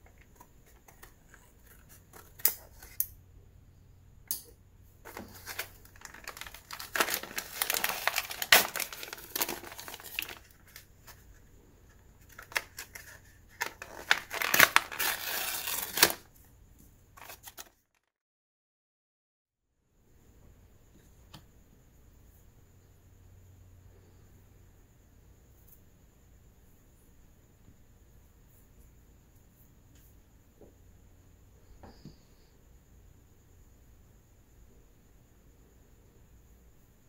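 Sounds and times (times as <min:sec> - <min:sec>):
card tearing with crinkling: 0:05.1 - 0:11.2, 0:12.2 - 0:16.3, 0:17.2 - 0:17.9.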